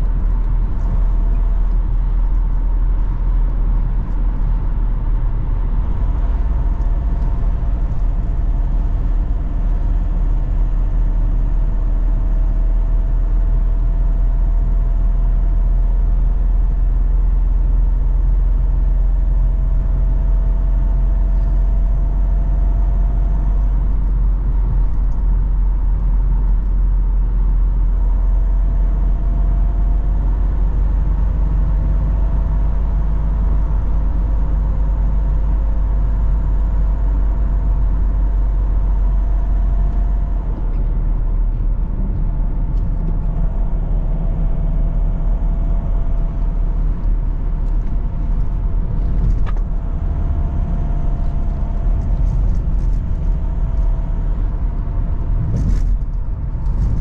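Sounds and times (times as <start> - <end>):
car engine and road noise: 0.0 - 57.0.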